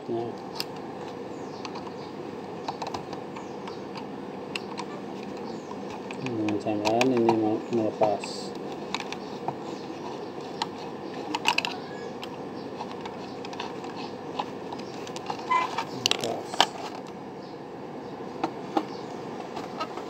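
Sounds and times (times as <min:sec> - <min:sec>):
steady background hiss: 0:00.0 - 0:20.0.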